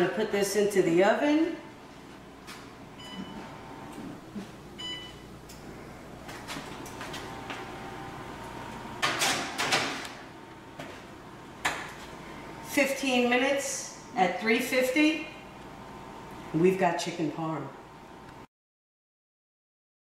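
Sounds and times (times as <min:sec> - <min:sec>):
oven door shutting: 0:08.7 - 0:10.2.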